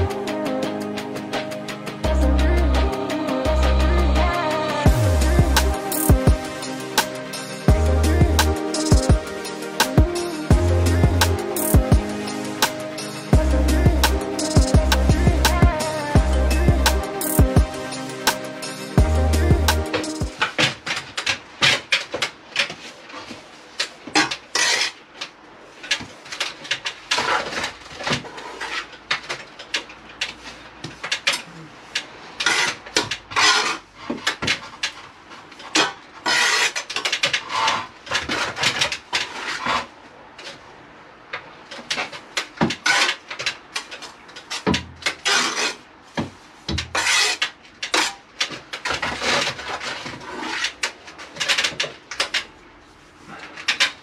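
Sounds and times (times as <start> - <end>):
trowel scraping on brick: 24.1 - 25.0, 32.4 - 34.4, 35.7 - 39.9, 44.6 - 48.2.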